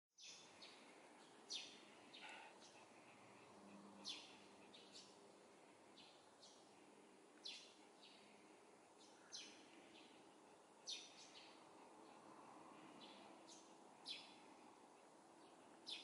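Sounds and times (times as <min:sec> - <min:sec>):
sparrow chirping: 0:00.2 - 0:00.8, 0:01.5 - 0:02.8, 0:04.0 - 0:05.2, 0:07.4 - 0:08.3, 0:09.0 - 0:10.2, 0:10.8 - 0:11.6, 0:13.0 - 0:14.4, 0:15.4 - 0:16.0
low background hiss: 0:00.2 - 0:16.0.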